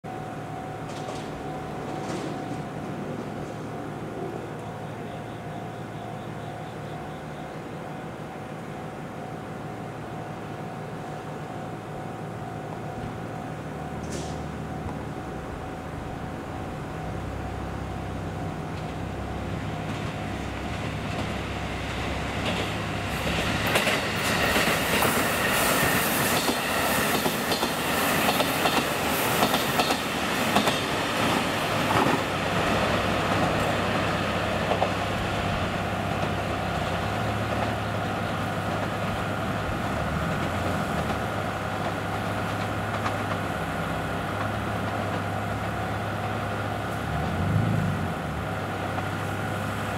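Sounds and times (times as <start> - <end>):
diesel train engines: 0.1 - 49.9
wheels clicking over rail joints: 35.9 - 47.4.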